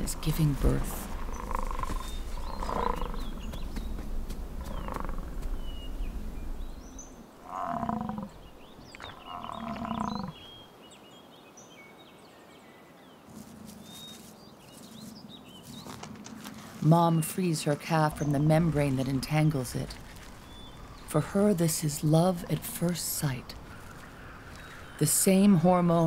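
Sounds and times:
bison low calls: 0.0s - 3.6s, 4.6s - 6.6s, 7.4s - 10.4s, 17.7s - 26.0s.

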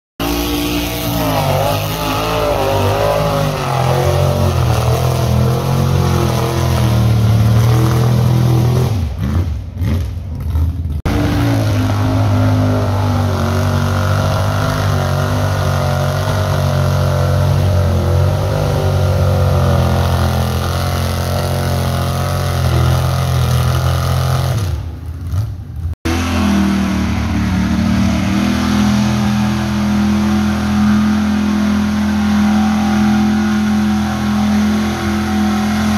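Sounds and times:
truck engine revving hard: 0.2s - 35.9s.

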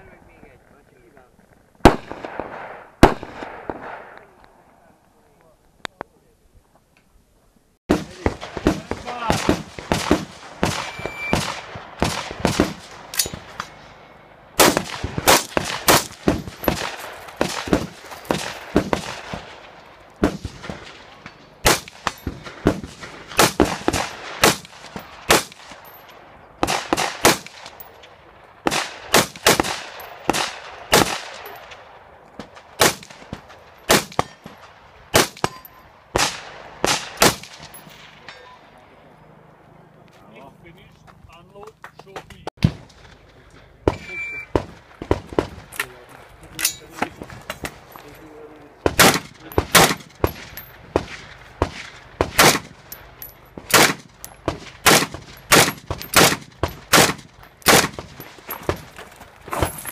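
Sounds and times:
rifle shots with echo: 1.8s - 4.4s, 7.9s - 13.8s, 14.6s - 38.7s, 42.6s - 46.0s, 48.8s - 58.9s.

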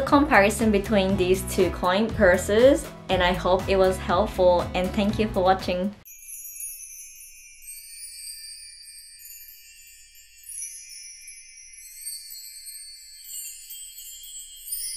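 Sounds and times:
tinkling chime-like music: 6.0s - 14.9s.

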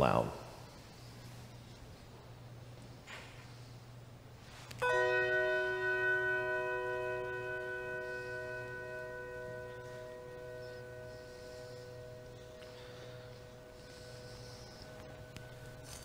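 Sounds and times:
bell ringing: 4.8s - 16.0s.

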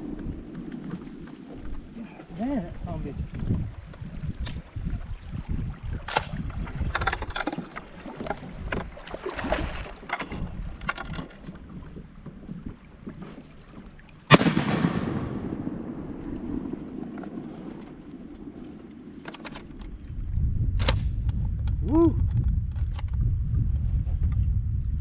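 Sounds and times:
kayak paddle splashing: 0.0s - 14.4s, 15.6s - 20.4s
low rushing noise: 14.3s - 19.2s.

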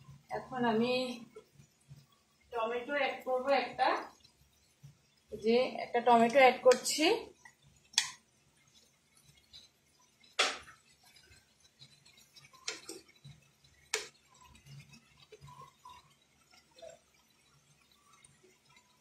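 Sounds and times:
plate tapping frying pan: 10.3s - 10.8s
spatula knocking frying pan: 10.3s - 10.9s, 13.9s - 14.6s.

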